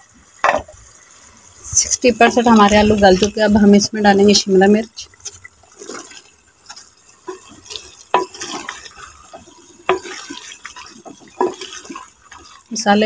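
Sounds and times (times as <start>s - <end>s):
wooden spoon knocking a pot: 0.4s - 0.8s, 7.2s - 12.6s
wet clatter of vegetable pieces: 5.1s - 13.0s.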